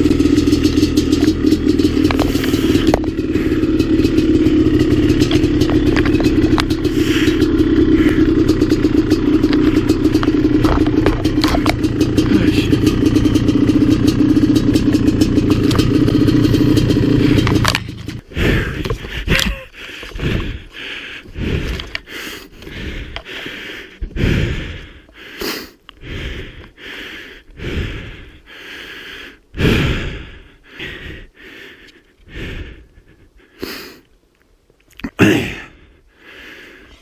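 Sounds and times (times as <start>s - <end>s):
two-stroke engine running: 0.0s - 25.1s
person breathing hard: 2.2s - 3.9s, 6.8s - 8.5s, 18.1s - 34.1s, 35.2s - 37.0s.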